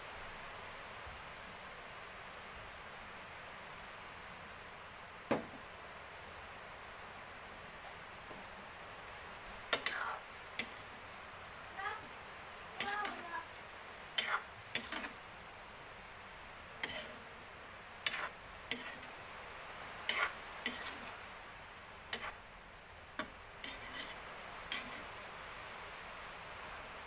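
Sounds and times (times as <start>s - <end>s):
spatula scraping a metal wok: 9.7s - 11.0s, 12.8s - 13.4s, 14.1s - 15.2s, 16.8s - 17.3s, 18.0s - 19.2s, 20.0s - 21.2s, 22.0s - 22.5s, 23.2s - 25.2s.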